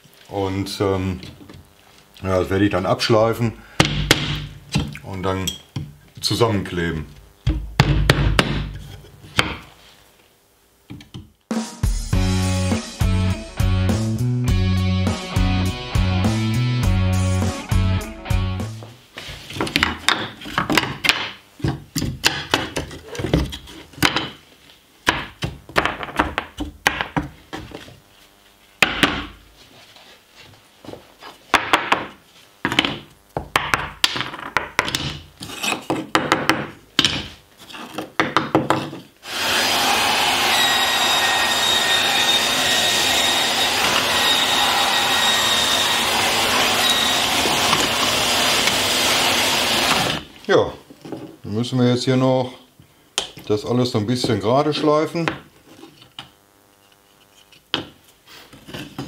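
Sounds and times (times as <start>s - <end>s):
vacuum cleaner whining: 39.2s - 50.4s.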